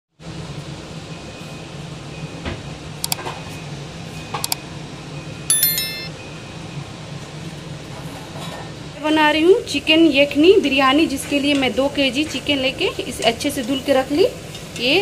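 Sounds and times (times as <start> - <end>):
ringing bell chime: 5.5 - 6.2.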